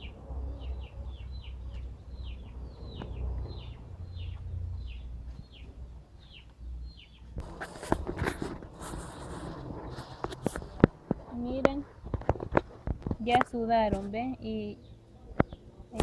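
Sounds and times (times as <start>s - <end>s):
bird chirping: 0.0s - 8.2s, 8.8s - 16.0s
rustling: 7.4s - 14.2s.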